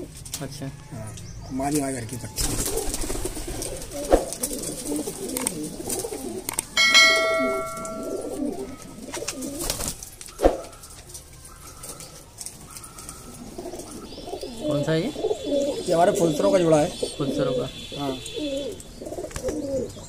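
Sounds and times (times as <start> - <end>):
pigeons cooing: 0.9 - 20.0
bell chime: 6.8 - 8.9.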